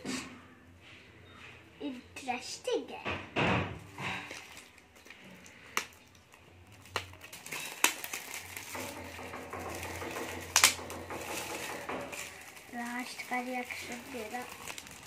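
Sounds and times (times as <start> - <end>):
foil paper wrapper crinkling and tearing: 4.0 - 15.0.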